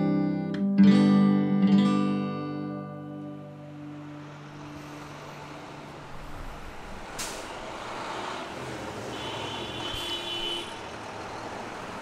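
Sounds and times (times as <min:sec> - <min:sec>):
guitar notes: 0:00.0 - 0:05.5
road vehicle noise: 0:02.2 - 0:12.0
sharp hiss: 0:07.0 - 0:07.8.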